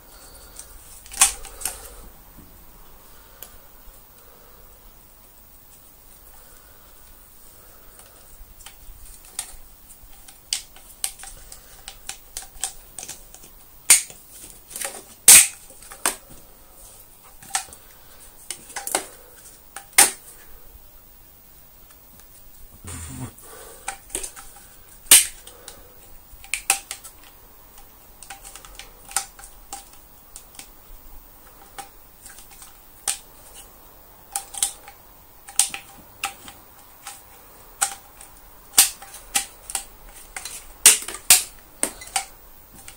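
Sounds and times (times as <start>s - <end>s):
plastic parts clicking together: 0.6s - 1.8s, 8.6s - 16.2s, 25.1s - 25.6s, 26.4s - 30.7s, 34.3s - 42.9s.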